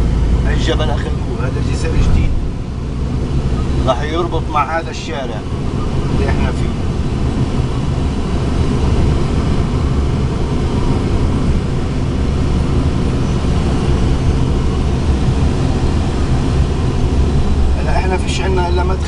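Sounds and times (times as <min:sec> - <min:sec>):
car road and wind noise: 0:00.0 - 0:19.0.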